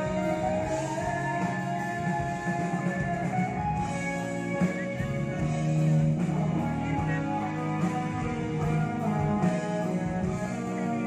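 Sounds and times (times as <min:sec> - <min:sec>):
live band instrumental music: 0:00.0 - 0:11.0.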